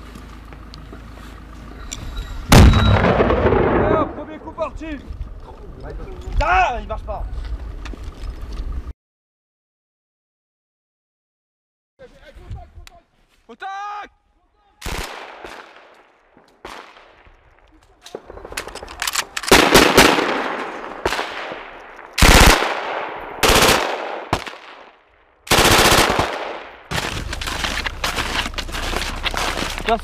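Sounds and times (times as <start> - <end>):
machine gun firing: 2.5 - 4.4, 14.8 - 15.9, 18.1 - 27.2
steady rustling noise: 26.8 - 30.0.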